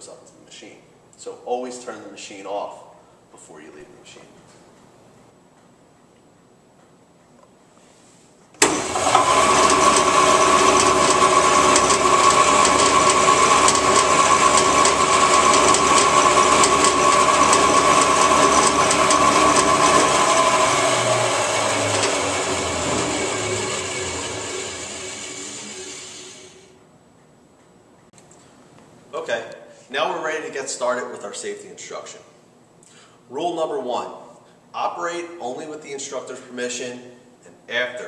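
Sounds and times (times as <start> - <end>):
band saw motor whining: 8.6 - 26.8
saw coasting down: 8.6 - 26.8.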